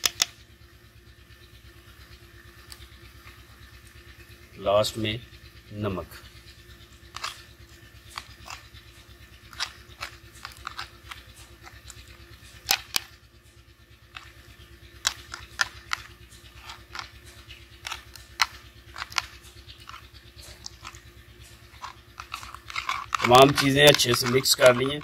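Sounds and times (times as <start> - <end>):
metal spoon stirring in clay bowl: 7.1 - 13.1, 14.1 - 25.0.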